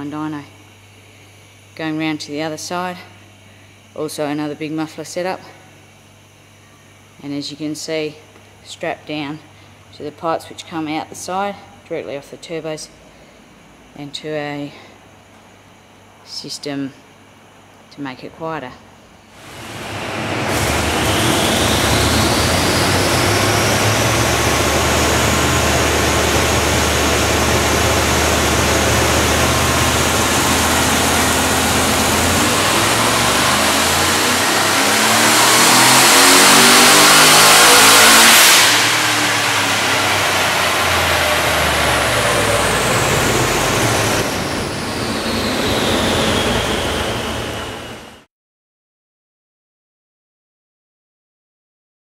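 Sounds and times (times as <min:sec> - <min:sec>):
car engine revving on dyno: 0:19.4 - 0:48.2.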